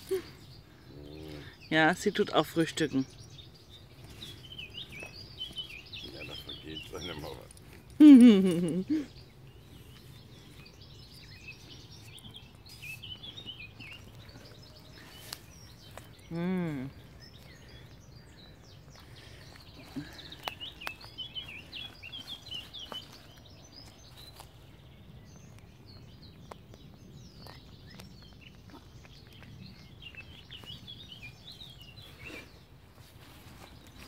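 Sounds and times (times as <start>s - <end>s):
rustling in dry straw: 31.6s - 34.0s.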